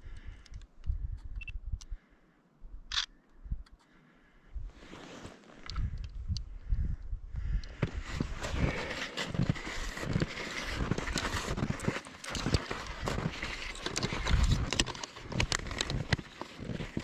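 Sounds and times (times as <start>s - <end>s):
footsteps crunching through snow: 4.7s - 5.6s, 7.9s - 17.0s.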